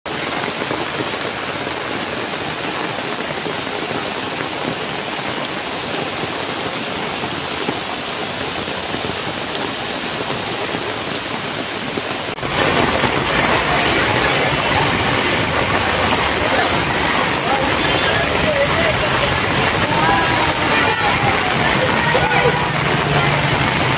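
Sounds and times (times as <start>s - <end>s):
heavy rain falling: 0.0s - 23.9s
rushing floodwater: 0.1s - 23.9s.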